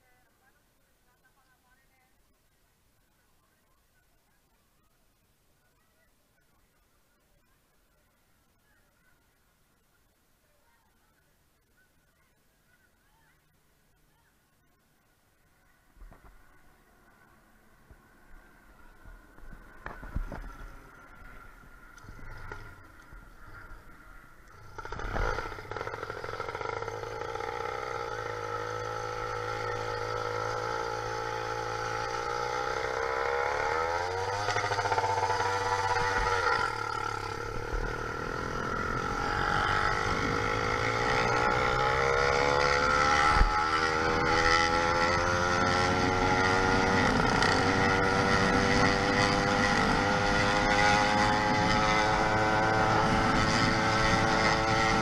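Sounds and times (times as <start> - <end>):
two-stroke engine running: 19.6 - 55.0.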